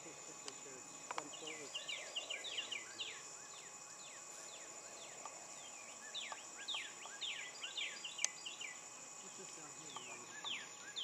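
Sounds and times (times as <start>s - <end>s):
birds chirping: 0.0s - 11.0s
high insect drone: 0.0s - 11.0s.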